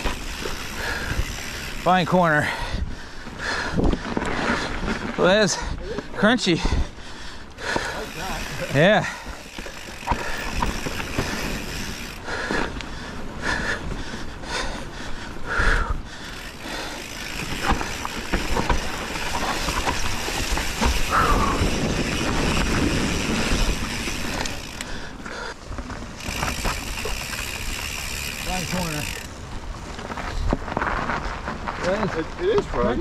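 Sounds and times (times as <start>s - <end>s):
bike chain clattering: 0.0s - 2.7s, 7.6s - 13.8s, 16.1s - 33.0s
bike tyres crunching on trail: 0.0s - 33.0s.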